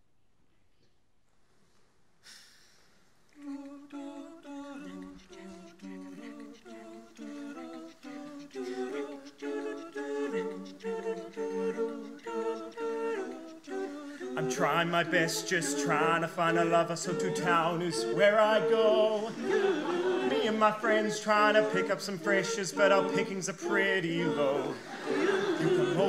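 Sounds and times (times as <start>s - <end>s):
brief hiss: 2.2s - 3.2s
vocal group humming in harmony: 3.4s - 26.0s.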